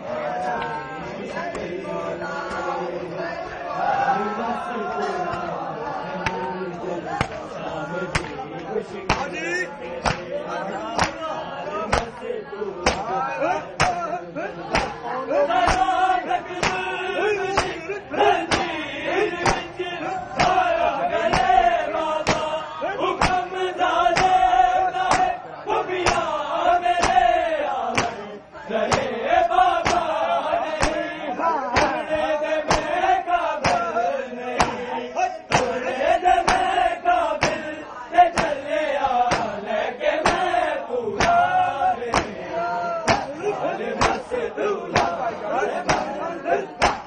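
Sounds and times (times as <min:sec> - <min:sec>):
men chanting in unison: 0:00.0 - 0:47.0
chest-beating slaps: 0:06.2 - 0:12.2, 0:12.8 - 0:15.0, 0:15.6 - 0:22.6, 0:23.2 - 0:25.4, 0:26.0 - 0:27.3, 0:27.9 - 0:28.3, 0:28.9 - 0:30.2, 0:30.8 - 0:34.9, 0:35.5 - 0:39.6, 0:40.2 - 0:40.6, 0:41.2 - 0:42.4, 0:43.0 - 0:47.0.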